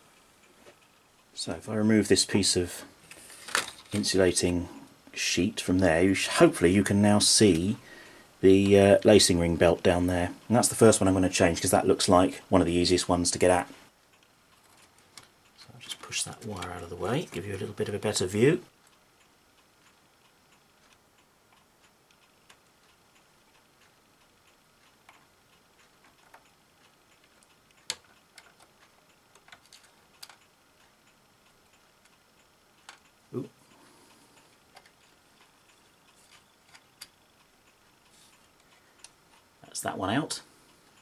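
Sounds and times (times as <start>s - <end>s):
hand tool clicking on tape mechanism: 27.2s - 30.4s.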